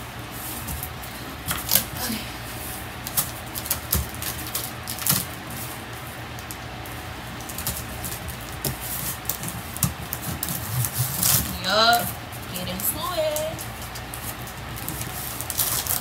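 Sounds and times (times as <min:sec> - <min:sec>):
cardboard flaps tapping and scraping: 0:07.4 - 0:12.1.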